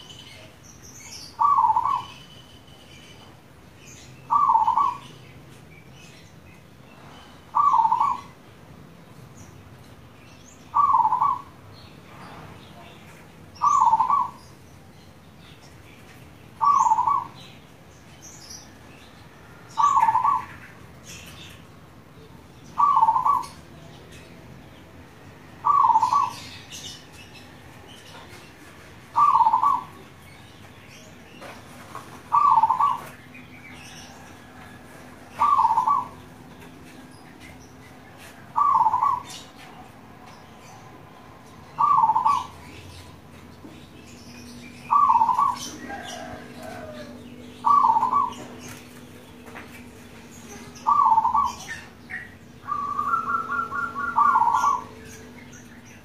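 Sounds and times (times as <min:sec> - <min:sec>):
dove cooing: 0:01.4 - 0:02.2, 0:04.3 - 0:05.1, 0:07.5 - 0:08.4, 0:10.7 - 0:11.5, 0:13.6 - 0:14.4, 0:16.6 - 0:17.4, 0:19.8 - 0:20.6, 0:22.8 - 0:23.6, 0:25.6 - 0:26.6, 0:29.1 - 0:30.0, 0:32.3 - 0:33.1, 0:34.2 - 0:36.3, 0:38.5 - 0:39.4, 0:41.8 - 0:42.6, 0:44.9 - 0:48.7, 0:50.5 - 0:55.4.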